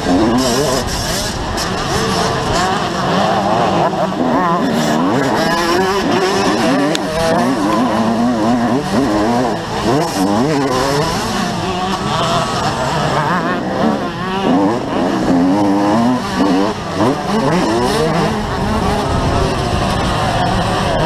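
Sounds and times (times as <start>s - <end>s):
motorbike engine revving: 0.0s - 21.0s.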